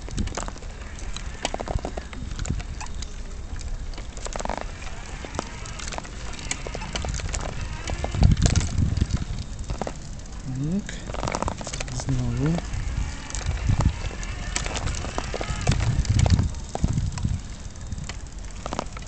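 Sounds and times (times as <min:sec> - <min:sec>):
low rumble of jolts: 0:00.0 - 0:19.0
wheelchair rattling over paving: 0:00.0 - 0:19.0.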